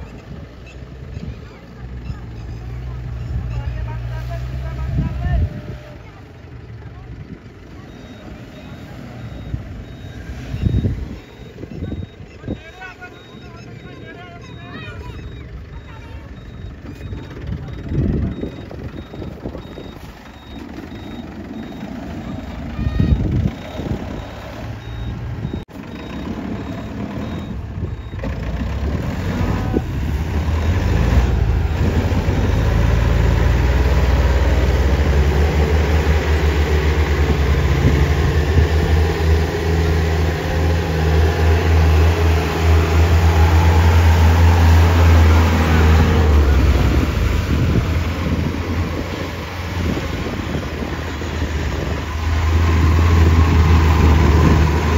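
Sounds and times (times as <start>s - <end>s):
engine revving hard: 26.0s - 54.9s.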